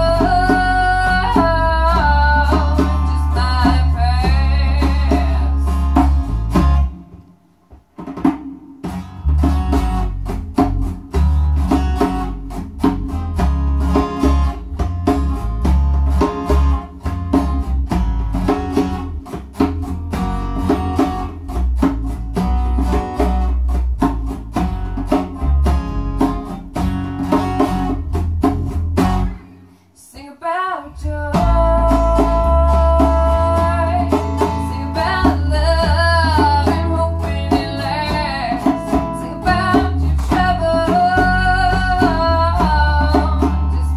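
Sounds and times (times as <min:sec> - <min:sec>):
woman singing: 0:00.0 - 0:06.1, 0:30.0 - 0:43.9
djembe played by hand: 0:00.0 - 0:07.2, 0:07.9 - 0:29.4, 0:31.4 - 0:43.9
bass guitar: 0:00.0 - 0:29.8, 0:30.9 - 0:43.9
strummed acoustic guitar: 0:00.0 - 0:29.9, 0:31.0 - 0:43.9.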